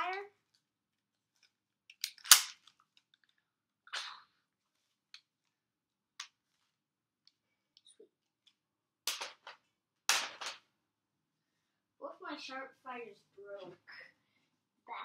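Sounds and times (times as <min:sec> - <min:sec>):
plastic snap: 0:01.9 - 0:02.8.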